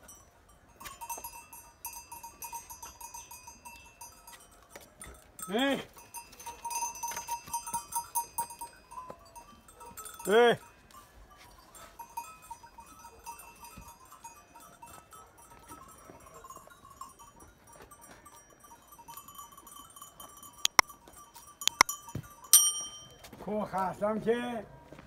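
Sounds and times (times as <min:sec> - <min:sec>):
small animal bells tinkling: 0:00.0 - 0:23.5
loud bell ring: 0:18.2 - 0:23.3.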